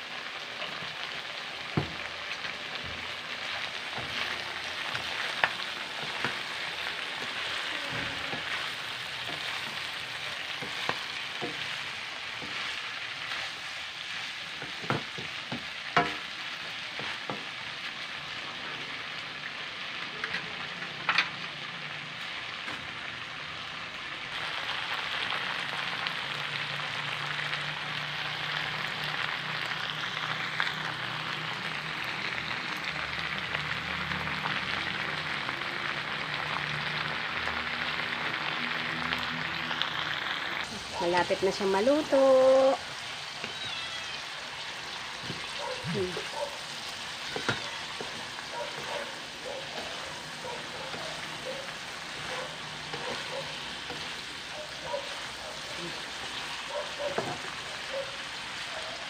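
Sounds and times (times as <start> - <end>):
food sizzling in a wok: 0.0 - 59.0
utensil knocking and scraping wok: 1.6 - 17.7, 45.1 - 57.8.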